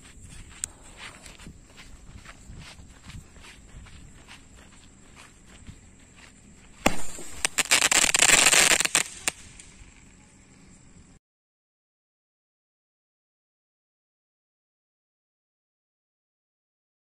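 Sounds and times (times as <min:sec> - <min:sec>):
firework bang: 0:06.8 - 0:09.7
firework crackling and popping: 0:06.8 - 0:10.0.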